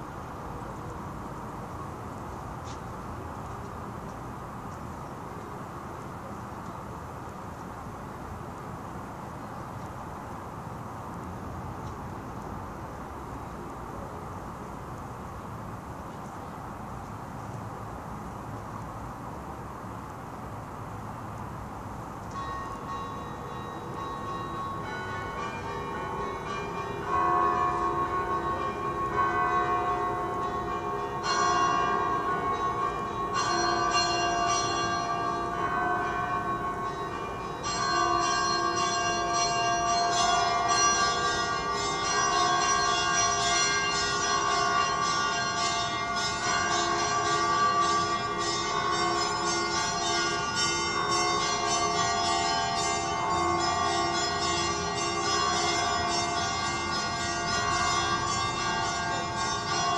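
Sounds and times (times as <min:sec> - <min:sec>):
church bells ringing: 0:22.3 - 0:59.9.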